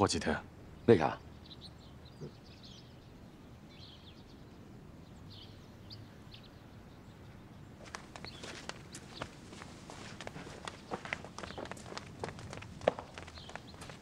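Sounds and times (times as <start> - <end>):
bird chirps: 0.7 - 9.3
footsteps: 7.8 - 14.0.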